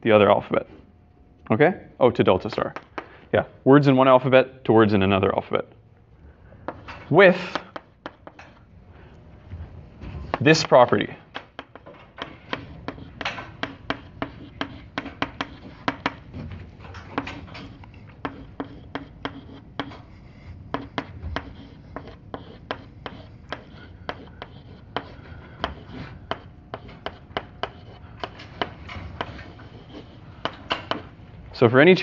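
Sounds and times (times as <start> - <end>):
chalk tapping on blackboard: 2.5 - 3.1, 6.6 - 8.6, 10.3 - 16.4, 17.1 - 31.1.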